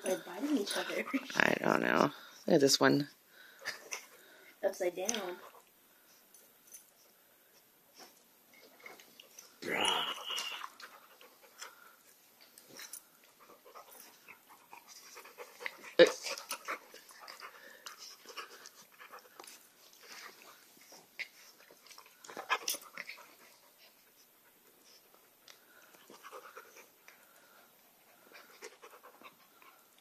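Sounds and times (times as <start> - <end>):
dog panting: 0.0 - 2.4, 10.6 - 30.0
dogs scuffling and mouthing: 4.8 - 30.0.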